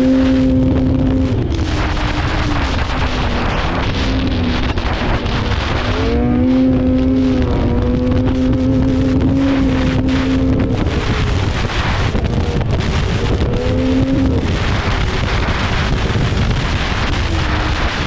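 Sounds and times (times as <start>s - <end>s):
snowmobile engine running: 0.0s - 18.0s
wind rushing over microphone: 0.0s - 18.0s.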